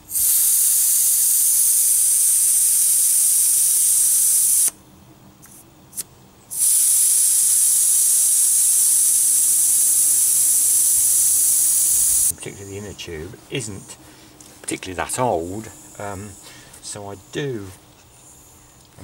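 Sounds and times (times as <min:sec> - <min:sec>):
air hissing from tyre valve: 0:00.0 - 0:04.8, 0:05.4 - 0:12.3.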